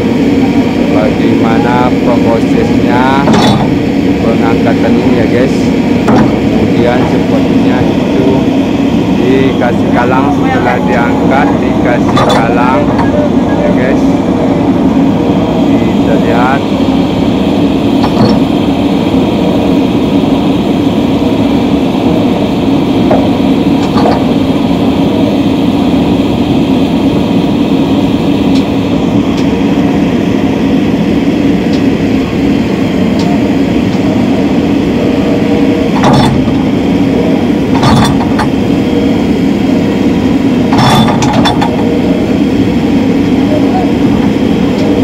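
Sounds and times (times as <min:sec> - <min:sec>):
excavator diesel engine running: 0:00.0 - 0:45.0.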